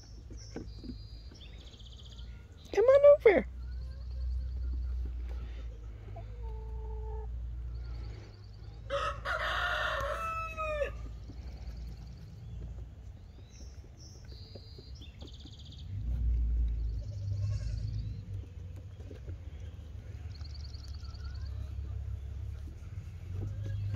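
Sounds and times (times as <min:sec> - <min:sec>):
small birds chirping: 0:00.0 - 0:23.9
rooster crowing: 0:08.9 - 0:11.0.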